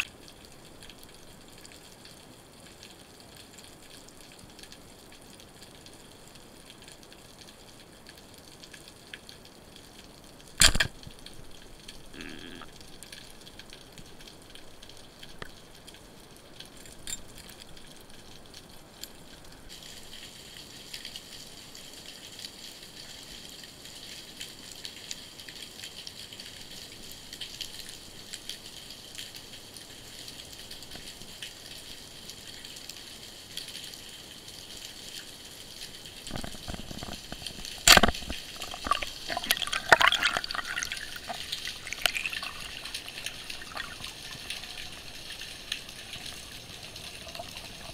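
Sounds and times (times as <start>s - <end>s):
bubbling and crackling: 0.0s - 47.9s.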